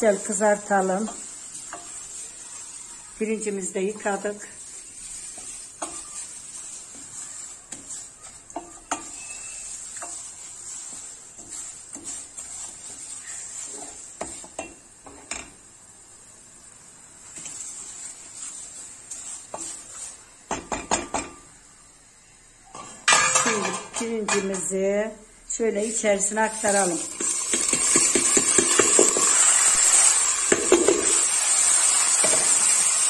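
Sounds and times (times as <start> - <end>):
noodles sizzling in oil: 0.0 - 33.0
spoon scraping a pot: 0.1 - 15.5, 17.4 - 21.4, 26.2 - 31.3.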